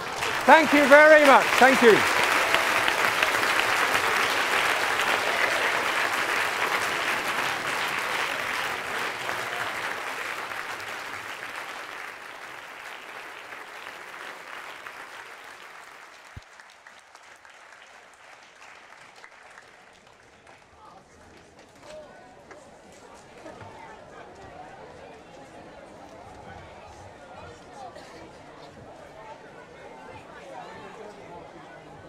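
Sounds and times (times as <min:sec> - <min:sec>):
audience applauding: 0:00.0 - 0:20.6.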